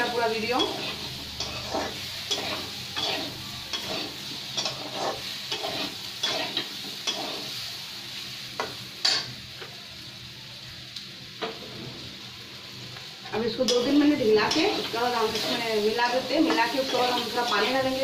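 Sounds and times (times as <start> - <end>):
spatula scraping a pan: 0.0 - 7.6, 13.6 - 18.0
frying sizzle: 0.0 - 18.0.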